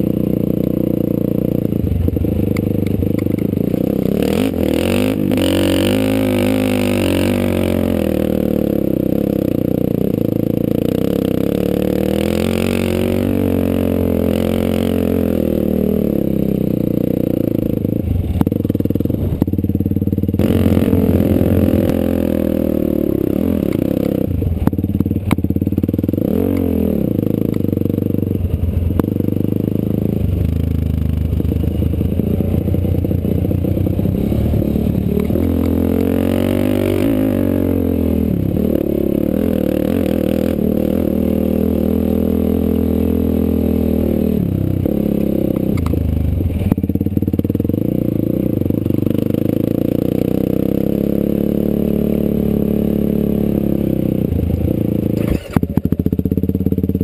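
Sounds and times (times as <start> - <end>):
off-road vehicle engine revving: 0.0 - 19.4, 20.2 - 28.3, 28.9 - 46.8.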